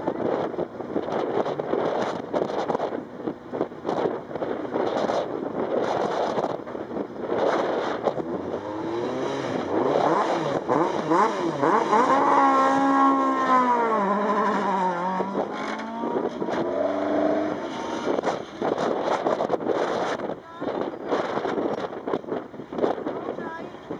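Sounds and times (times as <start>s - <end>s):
rally car engine revving: 0.0s - 20.4s.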